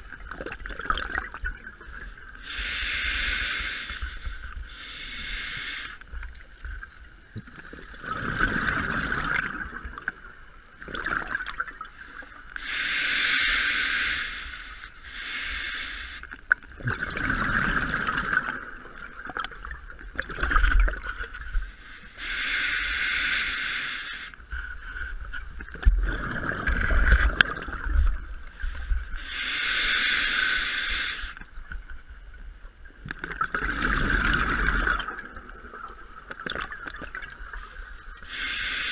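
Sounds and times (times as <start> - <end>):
hissing regulator inhalations: 2.4 - 6.1, 12.6 - 16.3, 21.7 - 24.5, 28.6 - 31.4, 37.6 - 38.9
bubbling gurgling exhalations: 7.7 - 10.0, 16.8 - 19.5, 26.0 - 28.0, 33.2 - 37.3.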